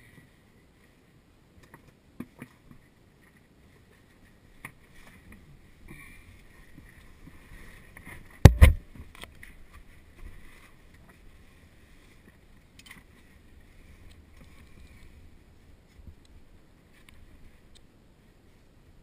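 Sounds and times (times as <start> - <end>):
knock against rock: 8.4 - 8.8.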